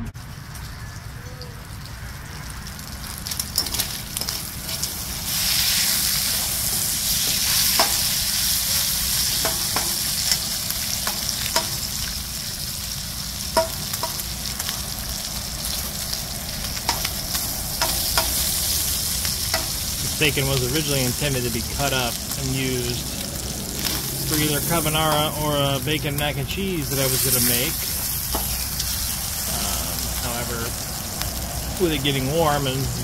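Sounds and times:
bacon sizzling in a pan: 0.3 - 33.0
metal utensil scraping a pan: 3.4 - 11.9.

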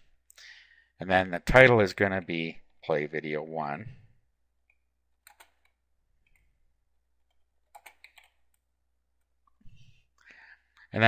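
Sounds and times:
faint keyboard typing: 5.2 - 6.5, 7.2 - 9.6.

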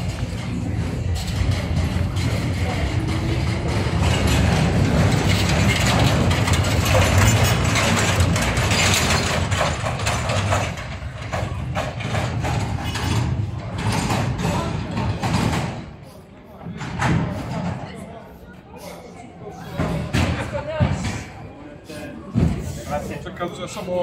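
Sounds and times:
metallic rattling and clanking: 0.0 - 16.0
vehicle engine rumbling: 0.0 - 17.8.

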